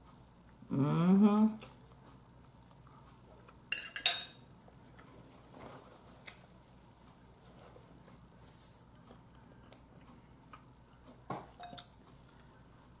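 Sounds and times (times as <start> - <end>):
fork clinking against ceramic bowl: 3.7 - 4.4.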